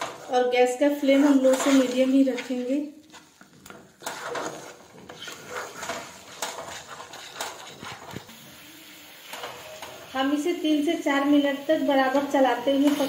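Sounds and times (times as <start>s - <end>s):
wooden spatula scraping pan: 0.0s - 8.4s.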